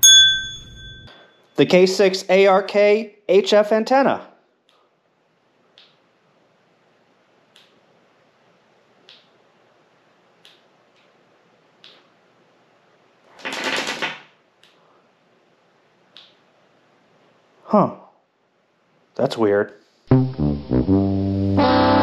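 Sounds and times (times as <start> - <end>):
faint sharp clicks: 5.7 - 6.0.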